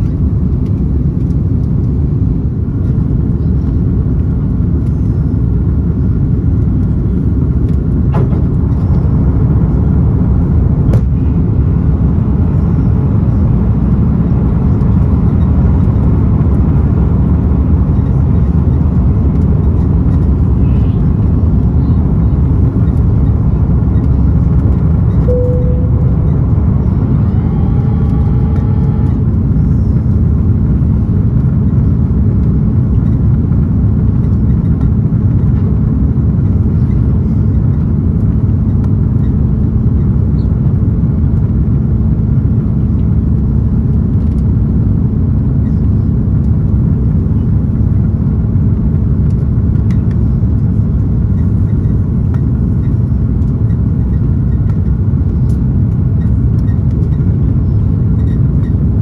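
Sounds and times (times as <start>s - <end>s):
steady hum: 0.0s - 37.7s
aircraft cabin rumble: 0.0s - 59.0s
short tone: 25.2s - 29.4s
brief ringing tone: 25.3s - 29.2s.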